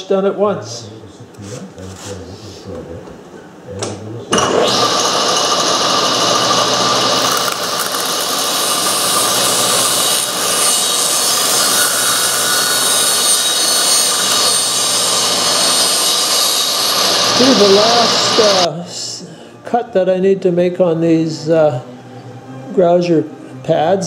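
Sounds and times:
saw blade cutting wood: 0:04.3 - 0:18.7
table saw running: 0:04.3 - 0:18.7.

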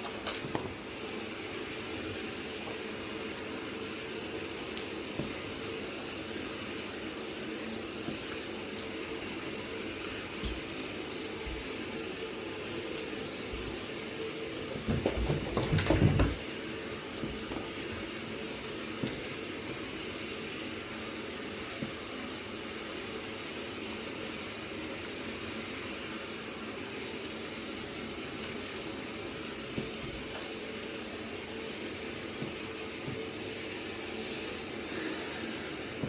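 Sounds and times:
tap water running into bath: 0:00.0 - 0:36.0
splashing and knocks: 0:14.8 - 0:16.4.

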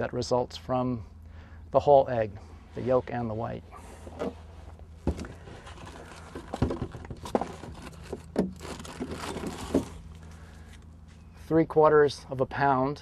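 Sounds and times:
knocks and clunks of rummaging: 0:04.0 - 0:10.0.

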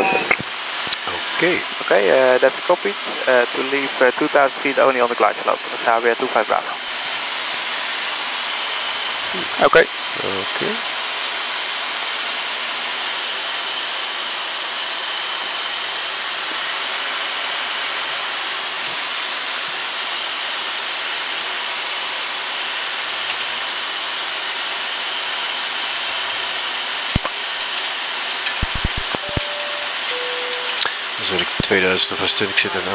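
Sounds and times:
in-flight cockpit rushing noise: 0:25.9 - 0:32.9
faint high tone: 0:29.2 - 0:30.9.

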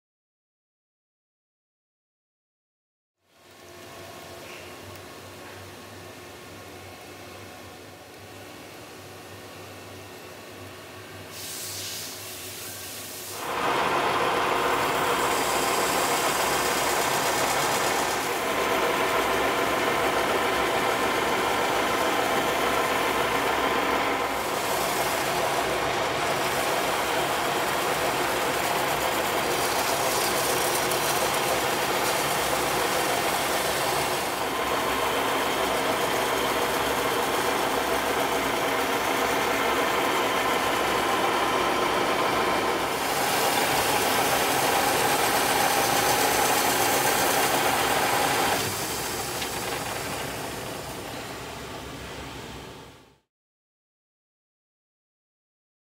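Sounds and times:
belt sander grinding hiss: 0:11.3 - 0:51.6
lathe motor hum: 0:13.4 - 0:51.8.

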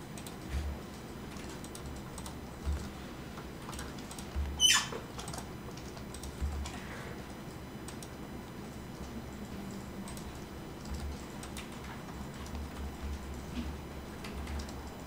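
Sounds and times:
computer keyboard typing: 0:00.0 - 0:15.0.

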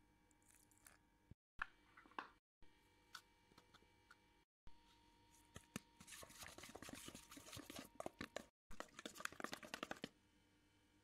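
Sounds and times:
spoon stirring thick marinade: 0:06.0 - 0:10.1.

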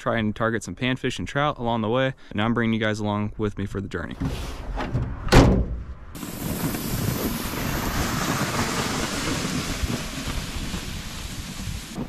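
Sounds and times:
tailgate thudding shut: 0:04.2 - 0:05.9
sled dragged over packed snow: 0:06.2 - 0:12.0
wind on microphone: 0:06.2 - 0:12.0.

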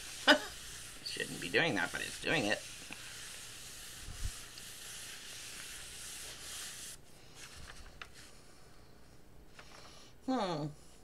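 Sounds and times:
steam iron hissing: 0:00.0 - 0:07.0
paper rustling: 0:02.0 - 0:08.4, 0:09.5 - 0:10.0.

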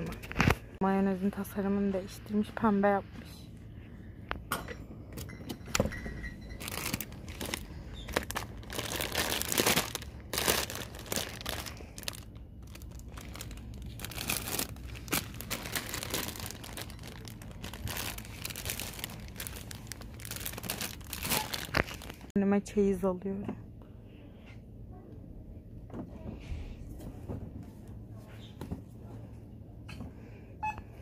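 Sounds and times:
plastic wrapping crinkling: 0:06.5 - 0:22.4.

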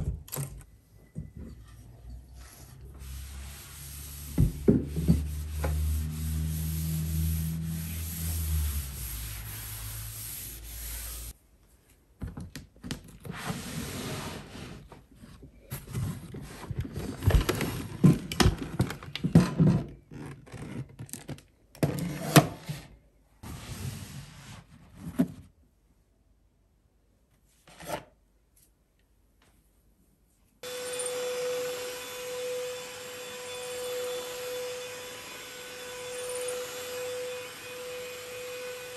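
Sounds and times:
steady rubbing: 0:01.8 - 0:11.4.

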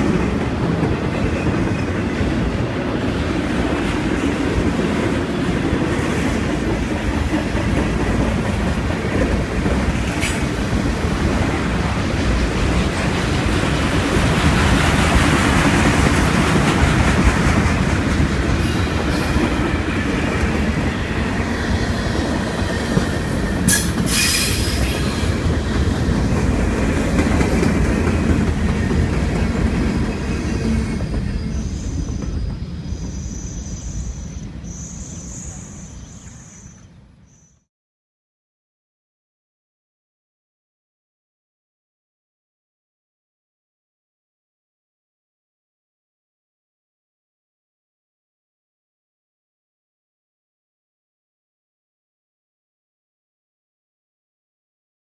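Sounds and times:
freight train wheels rumbling: 0:00.0 - 0:36.3.

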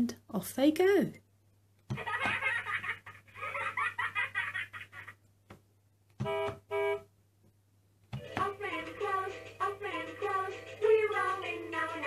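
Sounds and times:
toy horn beeps: 0:06.2 - 0:07.1.

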